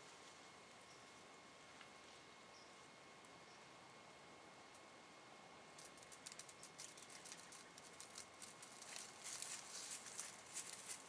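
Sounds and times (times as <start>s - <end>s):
deer stepping through dry leaves: 6.0s - 11.0s.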